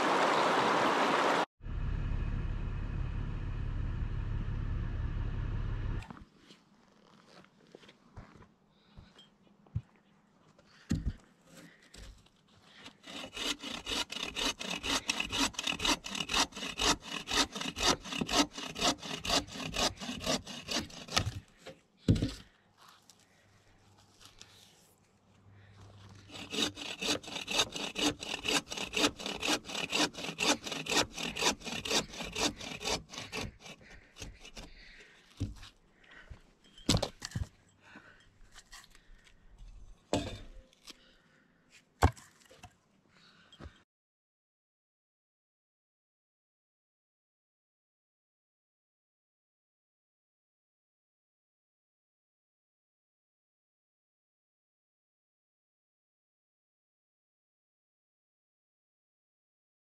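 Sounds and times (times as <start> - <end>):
hand saw cutting wood: 12.8 - 22.3, 26.1 - 35.7.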